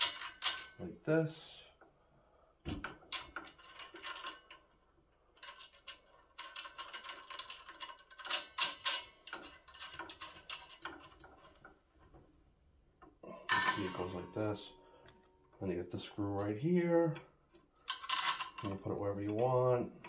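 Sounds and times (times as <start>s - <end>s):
metal parts clinking and rattling: 0.0s - 0.9s, 2.7s - 11.8s, 13.5s - 14.8s, 16.4s - 20.0s.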